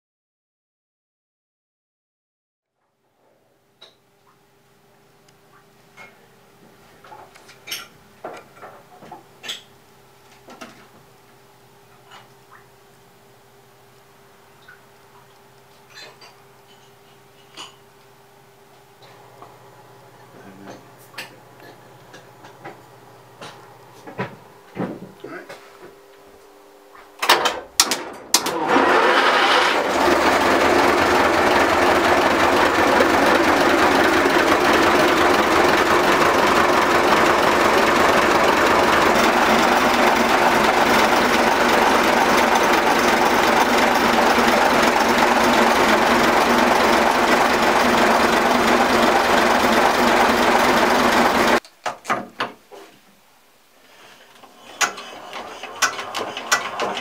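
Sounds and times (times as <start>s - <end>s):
diesel engine starting and running: 27.3s - 51.6s, 54.7s - 57.0s.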